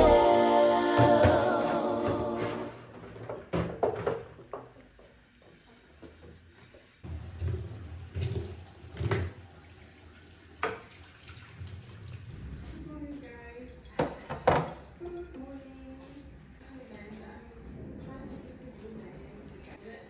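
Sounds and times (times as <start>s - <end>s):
water running from tap: 7.1s - 12.6s.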